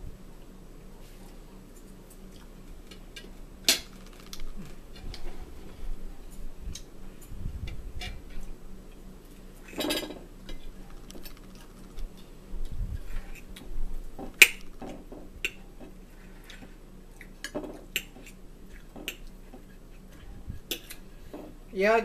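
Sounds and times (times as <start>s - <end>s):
cutlery clinking on plates: 9.7s - 10.2s.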